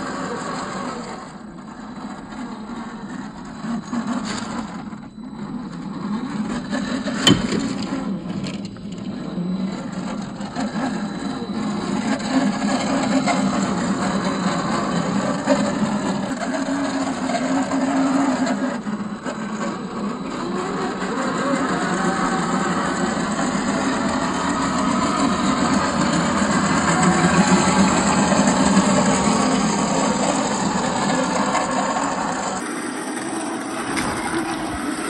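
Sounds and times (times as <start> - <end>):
electric motor whining: 0.0 - 35.0
tyres scraping on ground: 6.2 - 35.0
sharp knock: 7.3 - 7.8.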